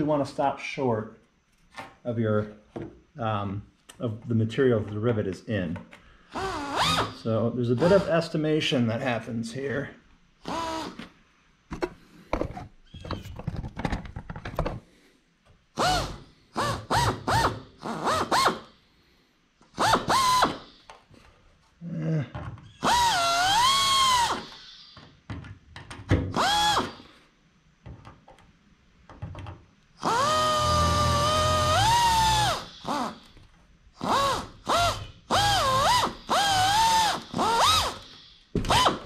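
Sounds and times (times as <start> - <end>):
pneumatic drill whining: 6.3 - 8.2, 10.4 - 11.1, 15.8 - 18.8, 19.7 - 21.0, 22.6 - 25.0, 26.2 - 27.2, 30.0 - 39.0.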